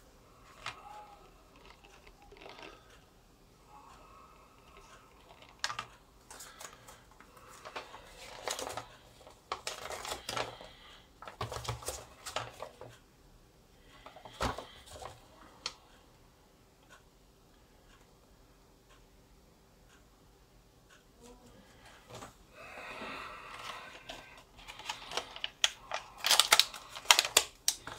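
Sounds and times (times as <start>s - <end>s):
plastic packaging crinkling and clicking: 0.4s - 3.0s, 4.7s - 13.0s, 14.1s - 15.8s, 23.5s - 27.9s.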